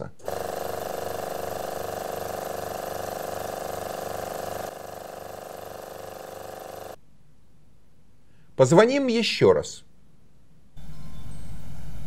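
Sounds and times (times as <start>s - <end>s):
vacuum pump pulsing hum: 0.2s - 7.0s.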